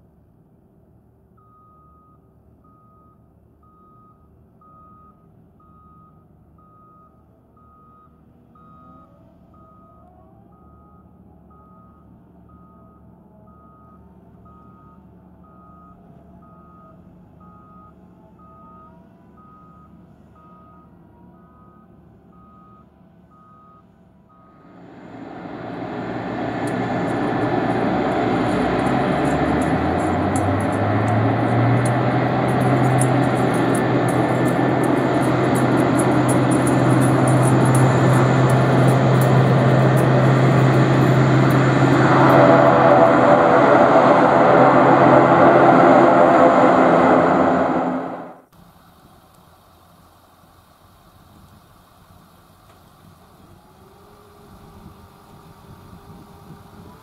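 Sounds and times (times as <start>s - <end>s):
faint engine hum: 0.9s - 57.0s
turboprop aircraft engines: 24.6s - 49.4s
backup alarm beeping: 24.8s - 48.3s.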